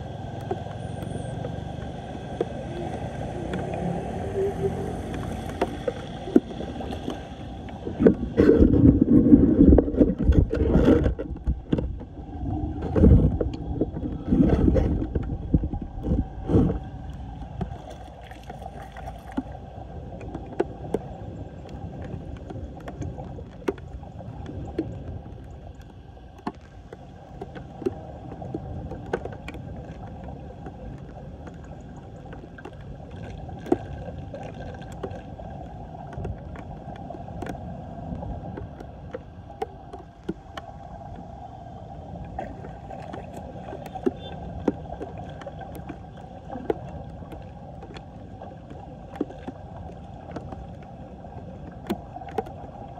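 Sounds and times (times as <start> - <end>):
water gurgling down a drain: 0.0 - 52.9
wind buffeting microphone: 7.7 - 17.8.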